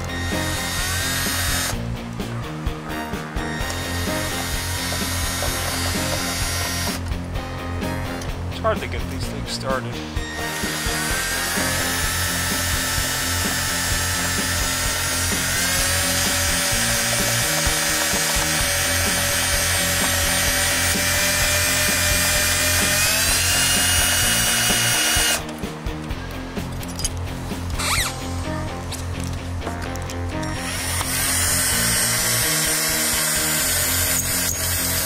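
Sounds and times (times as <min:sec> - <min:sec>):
cordless drill motor whine: 0:00.0 - 0:01.8, 0:03.4 - 0:07.0, 0:10.2 - 0:25.4, 0:27.8 - 0:28.1, 0:30.6 - 0:35.0.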